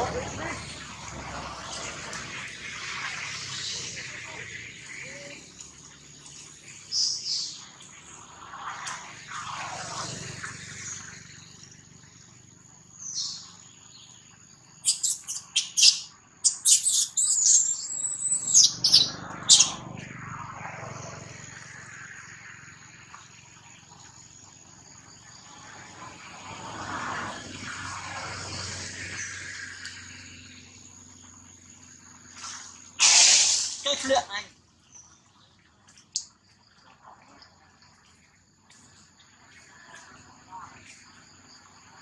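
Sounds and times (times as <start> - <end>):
birds chirping: 14.8 - 20.0.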